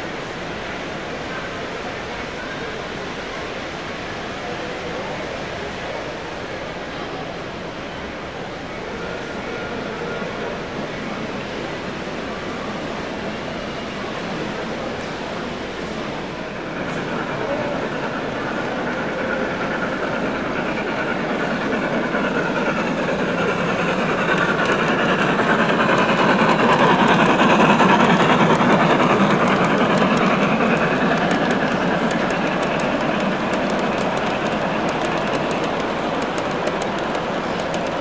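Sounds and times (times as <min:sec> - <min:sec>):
model train wheels rumbling on rails: 0:00.0 - 0:38.0
sharp clicks: 0:28.4 - 0:38.0.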